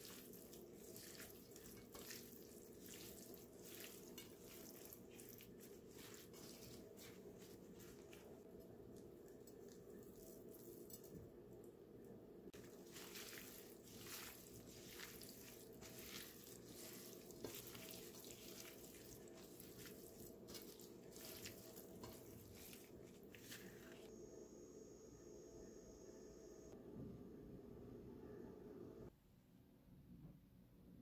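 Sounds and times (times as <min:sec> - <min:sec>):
plastic glove squishing and rustling: 0:00.0 - 0:11.2, 0:12.6 - 0:24.1
low background hum: 0:00.0 - 0:31.0.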